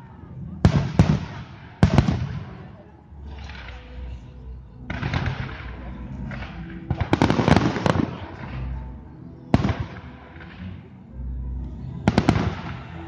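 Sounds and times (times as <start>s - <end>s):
fireworks bursting: 4.9s - 8.7s, 12.0s - 13.0s
fireworks crackling: 4.9s - 10.8s, 12.0s - 13.0s.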